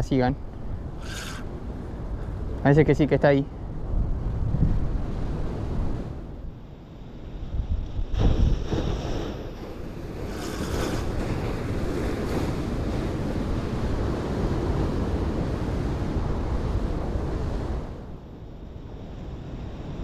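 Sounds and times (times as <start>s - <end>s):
wind rumbling on microphone: 0.0s - 20.0s
surf washing around rocks: 8.0s - 17.9s.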